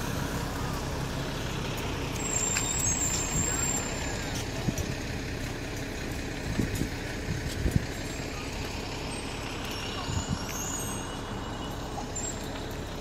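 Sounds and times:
low street rumble: 0.0s - 13.0s.

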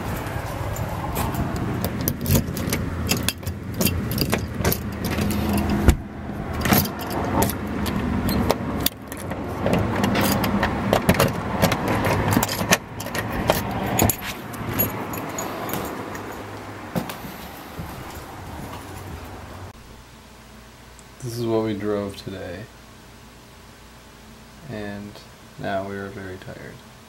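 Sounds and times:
steady low hum: 0.0s - 27.0s
keys jangling: 0.6s - 5.8s, 6.6s - 9.4s, 10.0s - 16.6s.

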